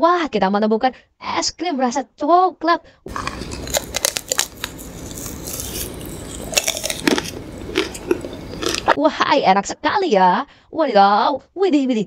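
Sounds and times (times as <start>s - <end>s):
chocolate shell crunching: 3.1s - 9.0s.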